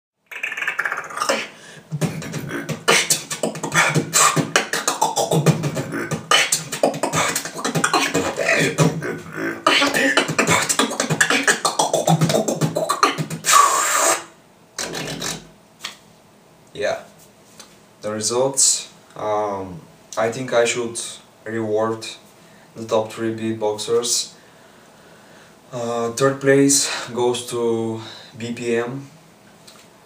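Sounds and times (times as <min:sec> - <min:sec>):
man beatboxing: 0:00.3 - 0:15.5.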